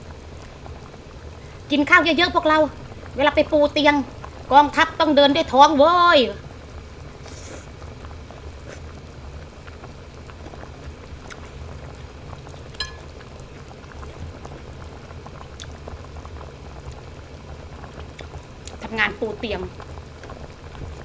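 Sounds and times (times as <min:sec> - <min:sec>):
broth bubbling in a pot: 0:00.0 - 0:21.0
chopsticks tapping ceramic plate: 0:12.8 - 0:13.1.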